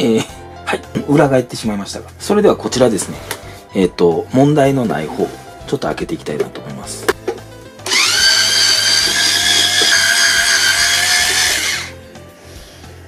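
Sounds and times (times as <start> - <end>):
electric screwdriver running: 7.8 - 12.0.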